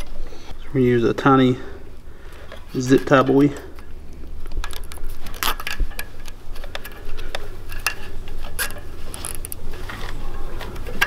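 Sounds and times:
plastic zip tie clicks and rustles: 2.3 - 11.0.

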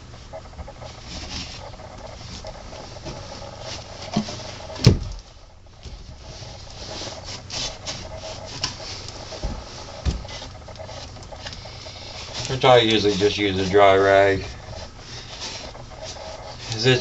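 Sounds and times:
cloth rag rubbing wood: 0.9 - 4.8, 5.8 - 17.0.

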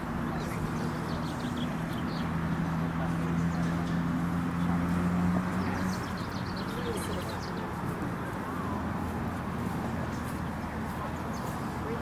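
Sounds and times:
distant crowd voices: 0.0 - 12.0.

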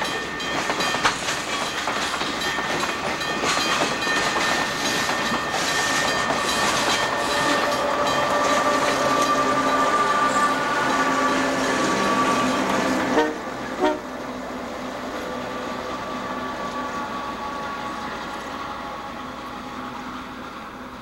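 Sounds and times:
freight train passing: 0.0 - 21.0
train horn steady tones: 5.9 - 14.4, 15.2 - 21.0.

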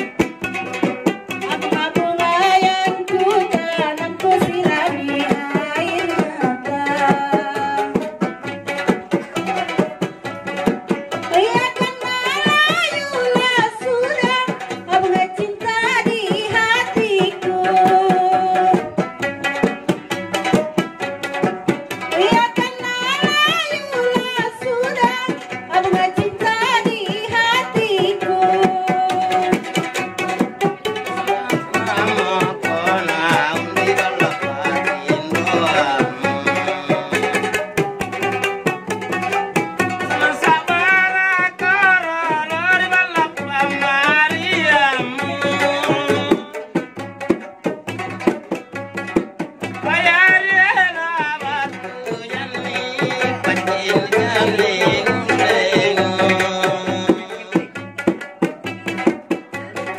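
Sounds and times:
frame drum beating: 0.0 - 59.9
plucked lutes: 0.0 - 59.9
woman singing: 1.3 - 8.3, 11.1 - 19.1, 22.0 - 29.8, 30.8 - 37.7, 39.9 - 46.8, 49.8 - 57.7.

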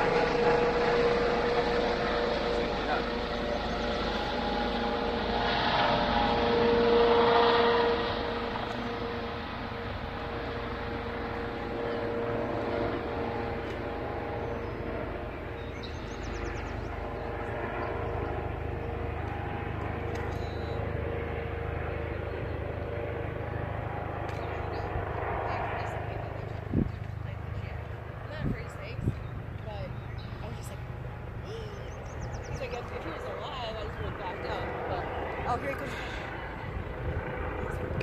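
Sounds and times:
engine hum: 0.0 - 38.0.

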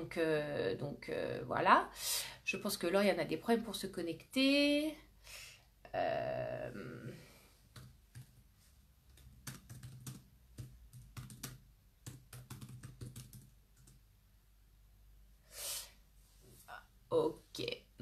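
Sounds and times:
typing on computer keyboard: 9.1 - 14.0.

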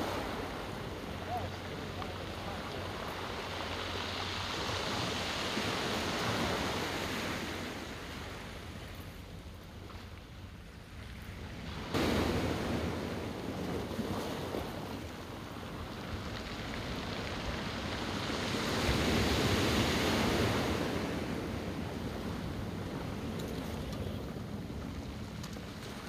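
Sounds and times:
ocean surf breaking on rocks: 0.0 - 8.8, 11.7 - 26.0.

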